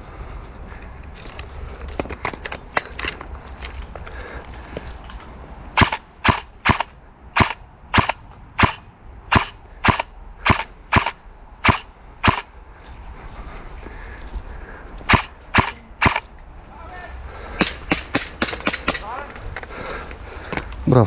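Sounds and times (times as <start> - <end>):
airsoft gun shots: 5.8 - 12.5, 15.1 - 16.3.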